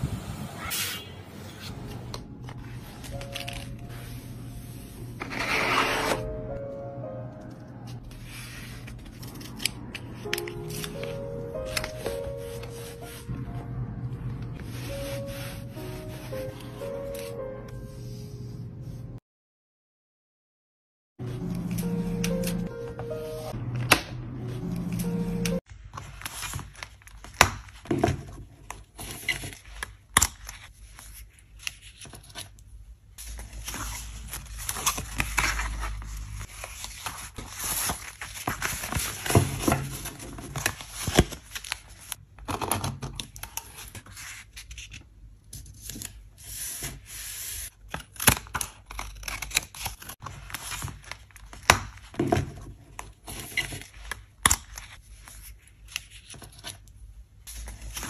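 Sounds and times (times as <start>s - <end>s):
pages rustling: 1.6s - 6.3s, 7.4s - 13.3s, 25.7s - 32.6s, 33.2s - 58.0s.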